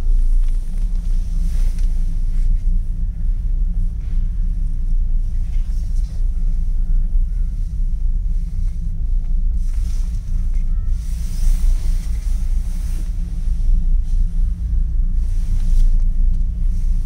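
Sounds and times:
cable car low rumble: 0.0 - 17.0.

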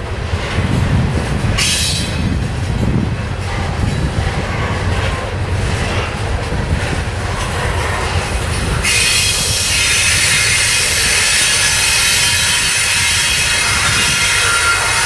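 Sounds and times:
train wheels rumbling on rail: 0.0 - 15.0
high-pitched wheel squeal: 8.8 - 15.0.

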